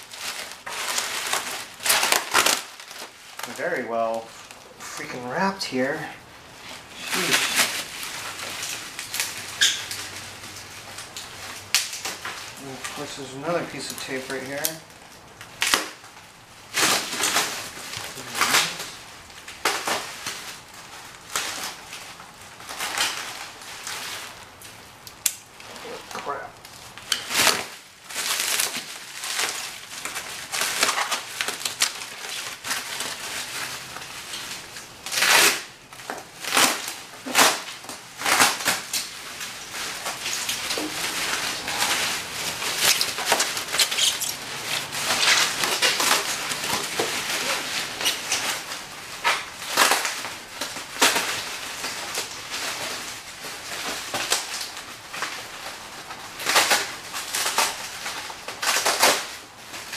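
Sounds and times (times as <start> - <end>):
bubble wrap crackles: 0.0 - 59.9
bubble wrap crinkling: 0.0 - 59.9.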